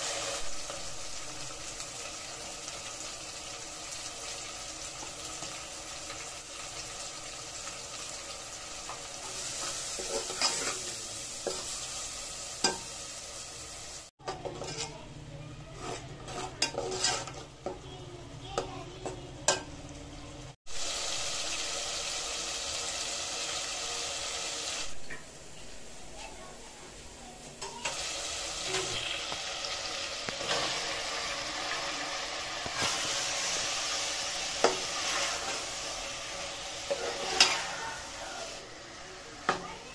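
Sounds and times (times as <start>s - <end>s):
masala sizzling in a pot: 0.0s - 39.9s
spoon stirring and scraping pot: 8.9s - 10.9s, 14.2s - 17.9s, 32.6s - 38.0s.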